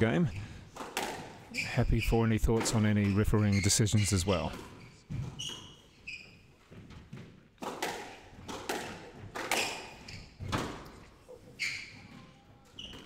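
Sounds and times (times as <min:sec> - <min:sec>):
squash ball cracking off rackets and walls: 0:00.7 - 0:01.6, 0:06.7 - 0:11.2
shoes squeaking on wooden floor: 0:01.3 - 0:07.6, 0:08.4 - 0:13.0.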